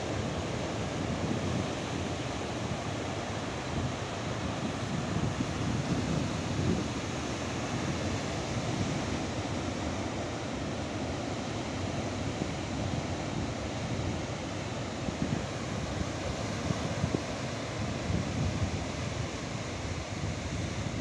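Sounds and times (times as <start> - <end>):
wind buffeting microphone: 3.8 - 9.3, 15.1 - 21.0.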